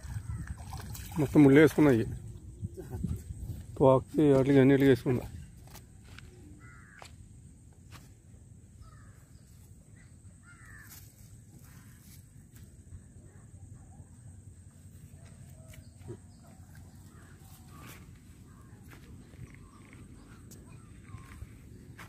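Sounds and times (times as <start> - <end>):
faint outdoor rumble: 2.1 - 22.0
distant crows cawing: 6.6 - 7.2, 8.8 - 9.2, 10.4 - 11.0, 17.0 - 19.0.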